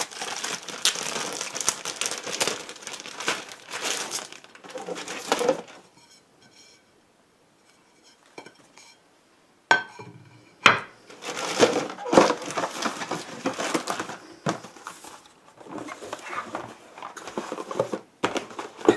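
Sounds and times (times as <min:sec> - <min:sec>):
cardboard packaging rustling: 0:00.0 - 0:05.9, 0:11.1 - 0:18.9
faint plastic crinkling: 0:00.0 - 0:06.6, 0:11.0 - 0:18.9.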